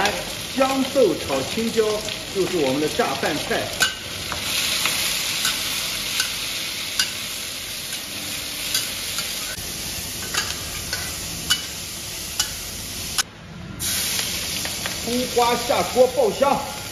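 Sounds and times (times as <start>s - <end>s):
vegetables sizzling in a wok: 0.0s - 16.9s.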